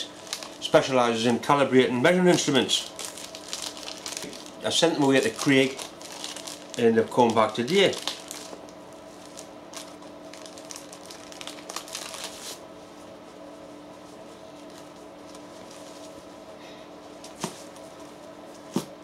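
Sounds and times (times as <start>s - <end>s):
plastic and bubble wrap crinkling: 0.0s - 12.6s, 14.1s - 16.2s
steady low hum: 0.0s - 19.0s.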